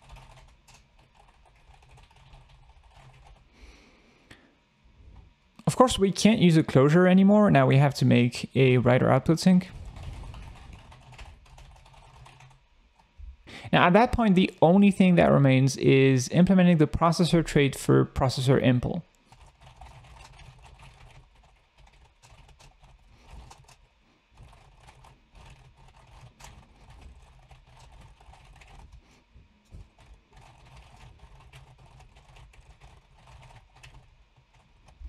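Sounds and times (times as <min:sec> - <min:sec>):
keyboard typing: 0:00.0 - 0:03.4, 0:09.6 - 0:13.1, 0:19.3 - 0:23.8, 0:24.4 - 0:29.0, 0:29.7 - 0:35.0
low steady hum: 0:00.0 - 0:35.0.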